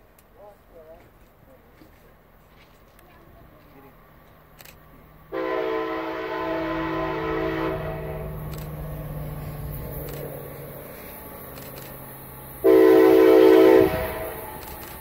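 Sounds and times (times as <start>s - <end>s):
distant locomotive rumble: 0.0s - 15.0s
train horn blast: 5.3s - 8.5s, 12.6s - 14.6s.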